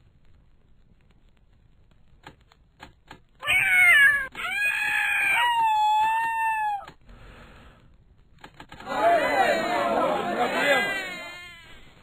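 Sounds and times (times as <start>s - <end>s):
cat meowing: 3.4s - 6.9s.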